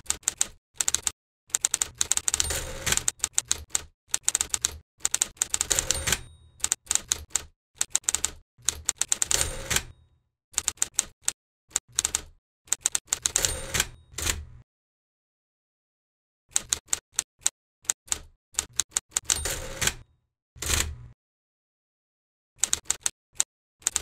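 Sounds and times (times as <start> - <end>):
typewriter carriage return rattle: 0.0 - 9.9, 10.6 - 14.5, 18.6 - 20.0, 20.6 - 21.1, 22.6 - 24.0
typewriter key strikes: 0.0 - 10.0, 10.6 - 14.5, 18.1 - 20.0.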